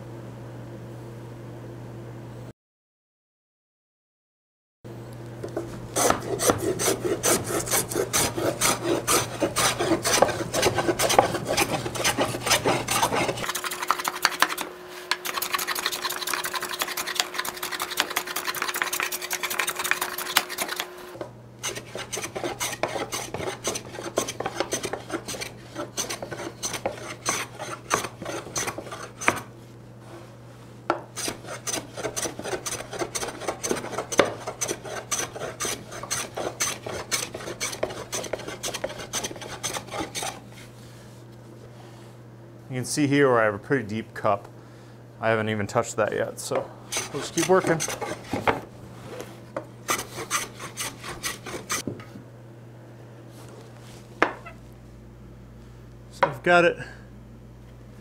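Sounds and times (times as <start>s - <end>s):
hand plane rasping over wood: 6.0s - 20.9s, 21.6s - 29.5s, 31.2s - 40.5s, 46.9s - 48.6s, 49.9s - 51.8s.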